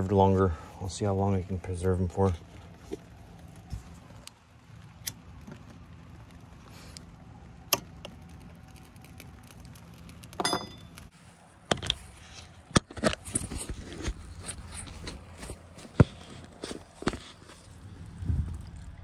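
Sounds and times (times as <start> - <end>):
gas burner flame hum: 0.0 - 19.0
ringing metal clink: 10.4 - 10.9.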